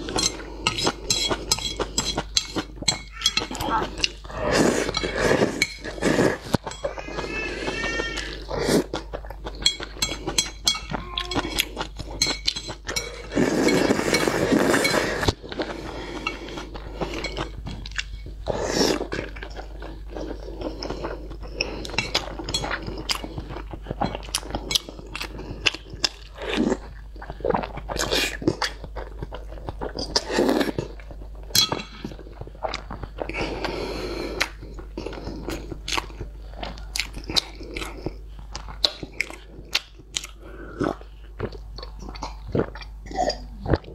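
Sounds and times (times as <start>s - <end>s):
noodles being slurped: 0.0s - 10.4s, 11.4s - 28.8s
chewing with wet mouth noises: 0.0s - 43.9s.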